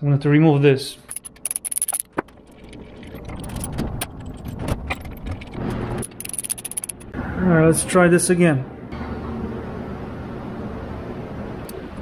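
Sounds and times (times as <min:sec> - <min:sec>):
metal clinks: 0:01.1 - 0:02.2, 0:03.0 - 0:07.1
socket ratchet clicking: 0:06.0 - 0:07.2.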